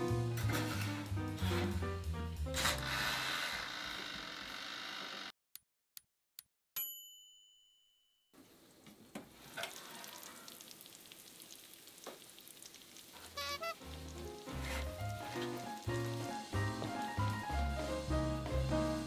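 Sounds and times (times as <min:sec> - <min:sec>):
timer bell ding: 0:06.8 - 0:08.0
food sizzling and crackling: 0:09.3 - 0:19.0.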